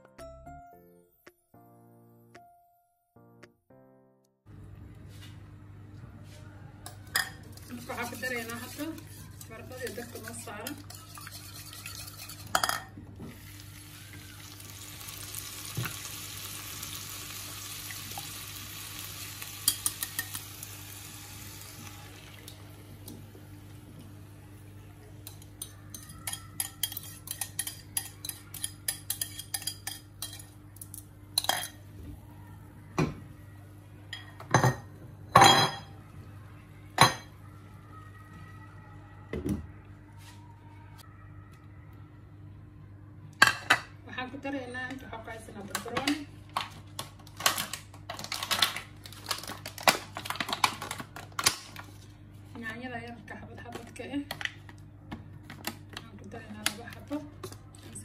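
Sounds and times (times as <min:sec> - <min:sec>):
utensils clinking against a pan: 0:06.9 - 0:12.9, 0:25.2 - 0:31.8
potato slices sizzling in a pan: 0:13.4 - 0:22.8.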